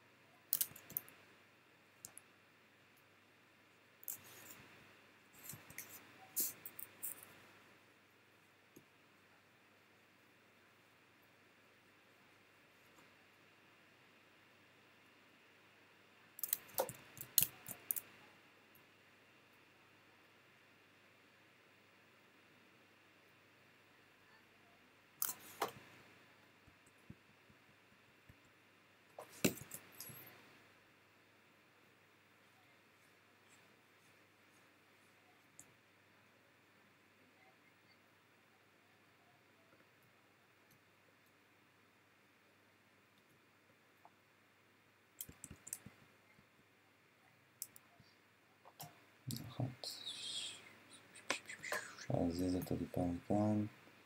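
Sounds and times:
computer mouse clicks: 16.4 - 18.1, 45.2 - 45.9.

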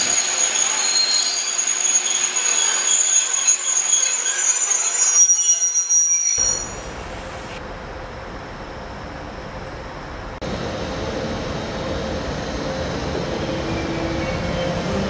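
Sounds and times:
train wheels squealing on rails: 0.0 - 7.0, 12.4 - 15.0
train coaches rolling: 0.0 - 8.6, 9.2 - 15.0.

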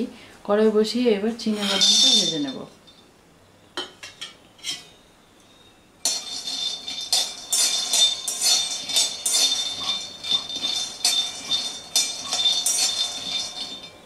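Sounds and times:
peanuts and spatula rattling in pan: 1.5 - 2.7, 6.0 - 14.0.

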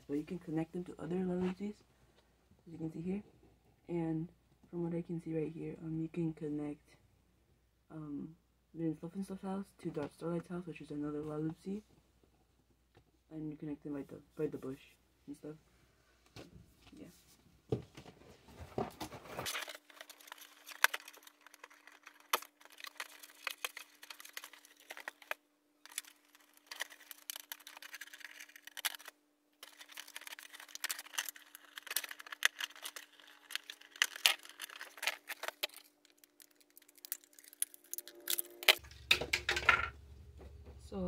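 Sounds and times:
plastic and cardboard crinkling: 17.8 - 39.8.

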